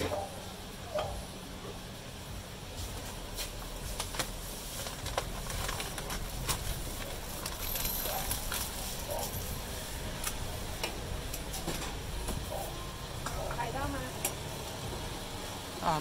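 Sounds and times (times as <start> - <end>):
paper crinkling and rustling: 2.9 - 9.6.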